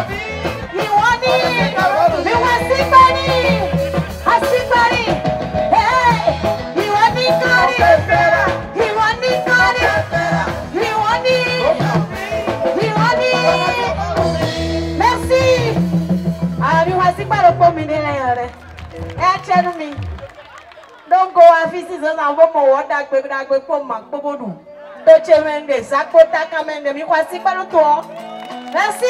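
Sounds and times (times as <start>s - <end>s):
woman singing with vibrato: 0.0s - 14.2s, 14.9s - 15.9s
live band playing: 0.0s - 22.2s, 24.0s - 29.0s.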